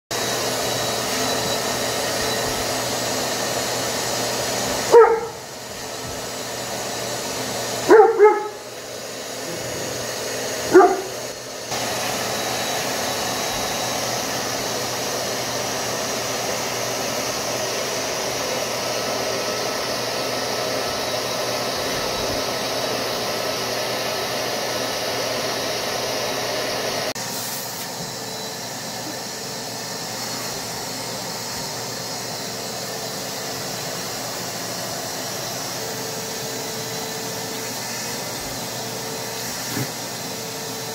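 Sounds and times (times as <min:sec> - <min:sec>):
shop vacuum running: 0:00.1 - 0:40.9
dog barking: 0:04.9 - 0:05.5, 0:07.8 - 0:08.6, 0:10.6 - 0:11.2.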